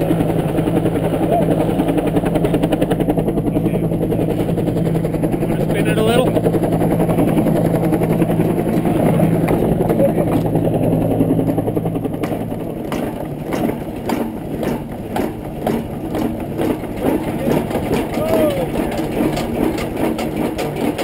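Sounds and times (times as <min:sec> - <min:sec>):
engine running low: 0:00.0 - 0:21.0
knocks and clanks: 0:11.4 - 0:21.0.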